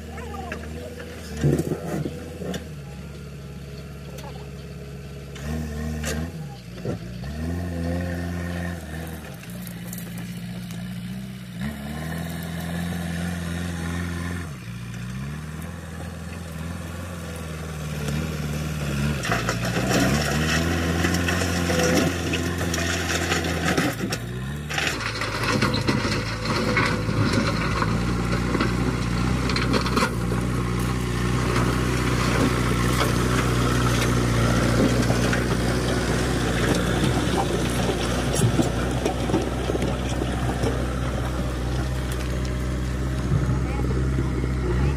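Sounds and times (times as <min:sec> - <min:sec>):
diesel engine under load: 0:00.0 - 0:44.9
stones scraping and crunching: 0:00.5 - 0:02.8, 0:05.4 - 0:44.9.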